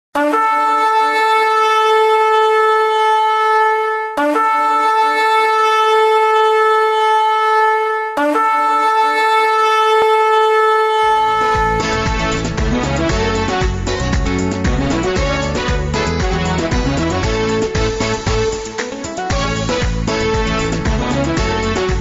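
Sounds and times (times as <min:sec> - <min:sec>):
shofar blasts: 0:00.2 - 0:14.1.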